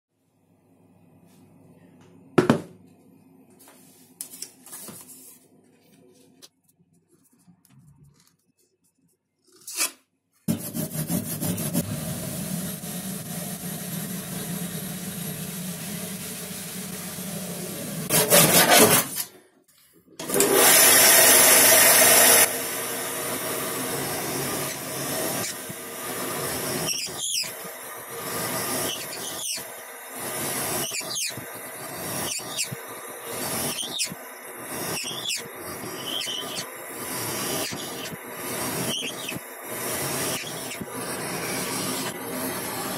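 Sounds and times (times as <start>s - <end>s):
power drill boring into wood: 23.9s - 42.9s
drill bit squealing: 24.5s - 42.9s.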